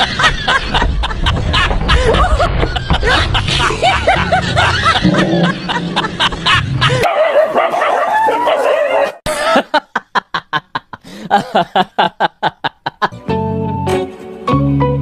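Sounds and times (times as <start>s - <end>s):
dog yelping and barking: 7.0s - 9.2s.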